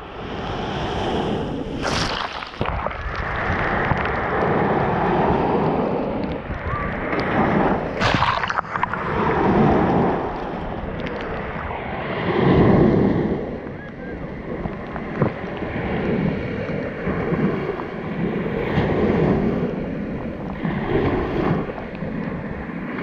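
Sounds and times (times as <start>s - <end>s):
water splashes: 0.0s - 13.8s
waves washing over sand: 0.0s - 23.0s.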